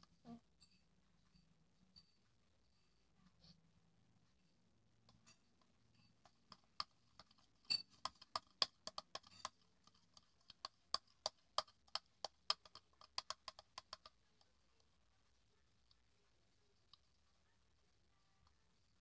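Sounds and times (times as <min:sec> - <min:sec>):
jelly eating clicks: 0:05.1 - 0:14.9.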